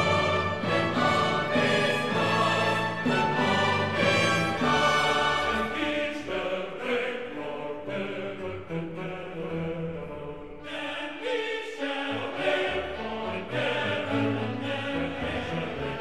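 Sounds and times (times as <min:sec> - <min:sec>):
music with choir-like voices: 0:00.0 - 0:16.0.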